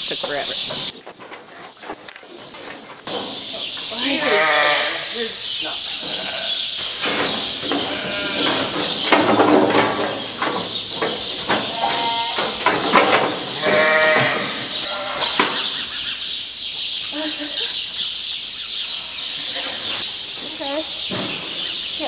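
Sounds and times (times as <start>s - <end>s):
sheep bleating: 4.0s - 5.4s, 6.0s - 6.7s, 7.8s - 8.8s, 13.6s - 15.4s
sharp knocks: 6.8s - 14.6s.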